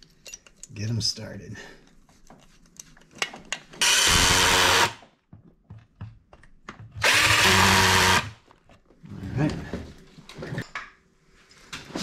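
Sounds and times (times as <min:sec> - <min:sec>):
light clicks of bit and screws: 0:00.0 - 0:01.0, 0:01.8 - 0:03.7
cordless drill driving screws: 0:03.8 - 0:05.0, 0:07.0 - 0:08.4.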